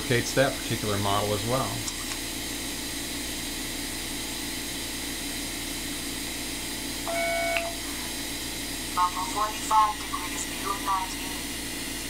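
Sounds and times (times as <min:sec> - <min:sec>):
scanner whirring hum: 0:00.0 - 0:12.0
electronic beep: 0:07.1 - 0:07.8.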